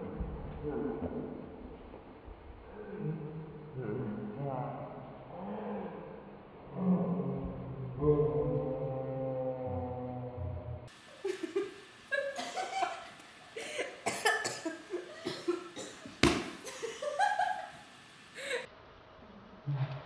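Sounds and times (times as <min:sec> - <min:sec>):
young people laughing: 0:11.2 - 0:15.8, 0:16.6 - 0:17.8, 0:18.4 - 0:18.7
people coughing: 0:13.6 - 0:17.0.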